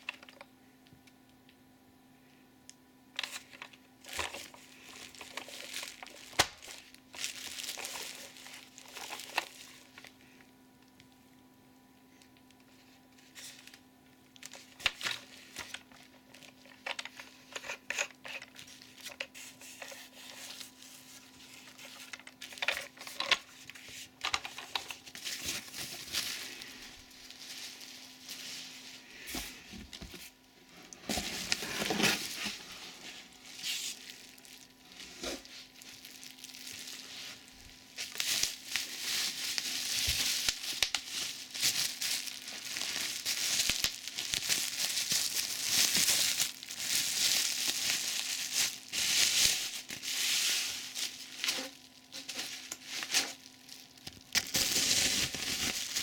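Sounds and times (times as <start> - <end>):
plastic packaging crinkling: 0.0 - 0.5, 3.2 - 11.2, 12.2 - 56.0
plastic parts clicking and knocking: 24.2 - 25.0.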